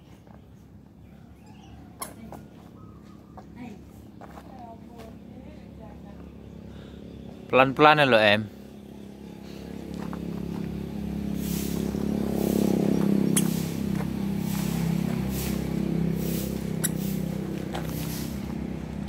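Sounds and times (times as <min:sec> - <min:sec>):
low engine hum: 0:00.0 - 0:19.0
footsteps crunching on gravel: 0:02.6 - 0:05.2, 0:09.5 - 0:19.0.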